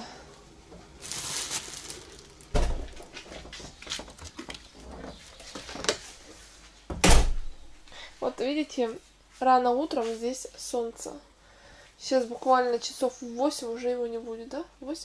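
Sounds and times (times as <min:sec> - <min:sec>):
heavy door thud: 0:02.5 - 0:03.0, 0:06.9 - 0:07.5.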